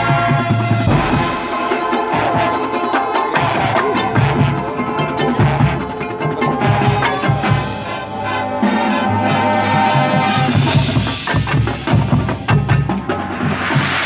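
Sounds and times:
marching band playing: 0:00.8 - 0:02.9.

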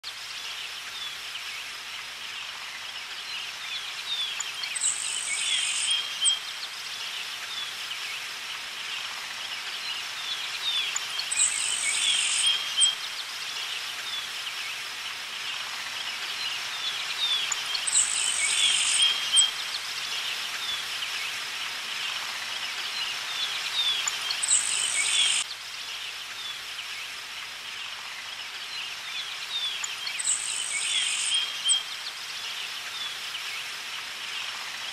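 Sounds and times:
birds chirping: 0:23.4 - 0:25.4
high insect drone: 0:24.0 - 0:26.2.

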